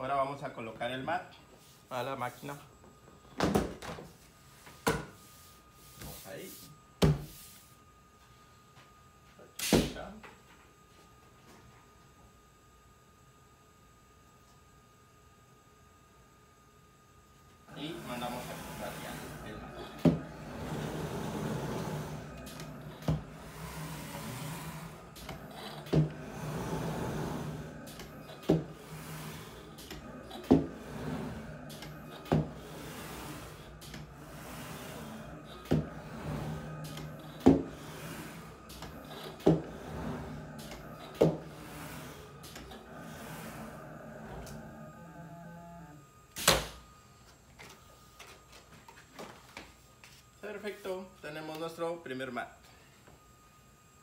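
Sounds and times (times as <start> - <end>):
mat cutter motors humming: 15.4 - 54.0.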